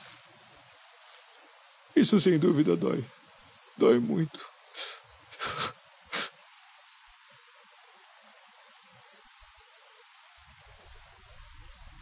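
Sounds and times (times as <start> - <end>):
insects buzzing: 0.0 - 12.0.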